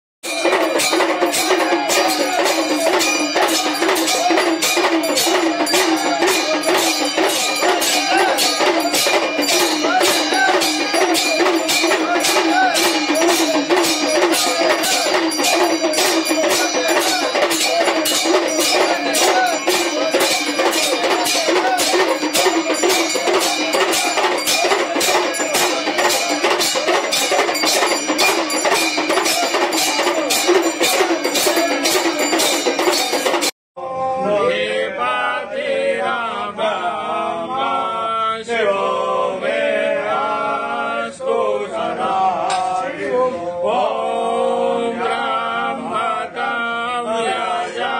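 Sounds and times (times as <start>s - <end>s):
drums and bells beating: 0.2s - 33.6s
person chanting: 0.3s - 27.6s
voices chanting a hymn: 0.3s - 33.2s, 33.8s - 47.9s.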